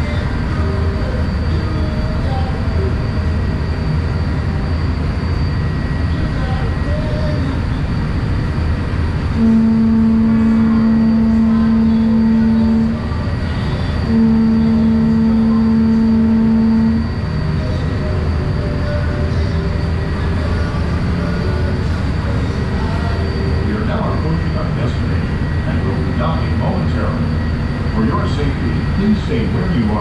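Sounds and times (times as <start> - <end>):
ferry engine rumble: 0.0 - 30.0
ferry horn blasts: 9.4 - 13.2, 14.0 - 17.2.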